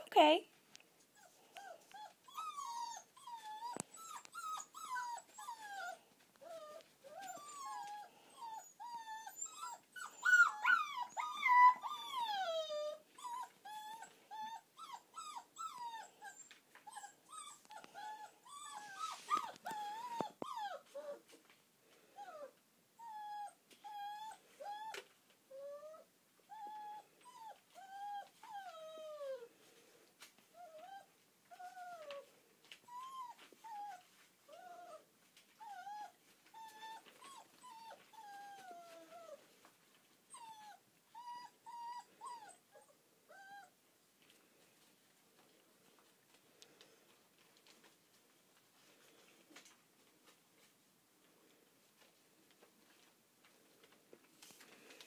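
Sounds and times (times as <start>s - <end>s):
puppies whining and yelping: 1.1s - 21.4s, 22.2s - 29.5s, 30.5s - 39.6s, 40.3s - 43.8s.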